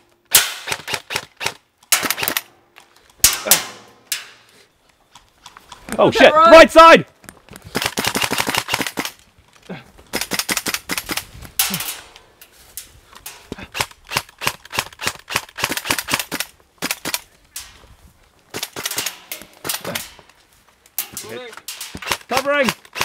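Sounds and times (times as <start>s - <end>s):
airsoft rifle firing on full auto: 7.8s - 9.1s, 22.0s - 23.0s.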